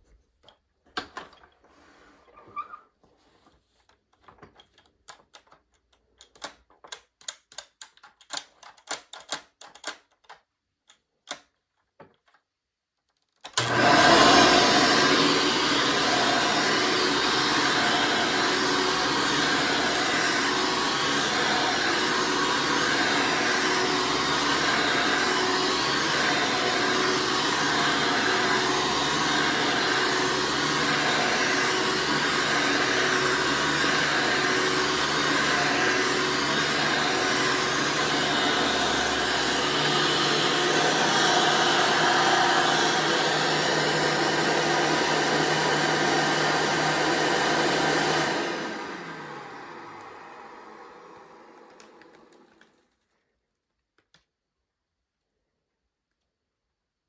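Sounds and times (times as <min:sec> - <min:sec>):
vacuum cleaner on carpet: 0:13.6 - 0:52.8.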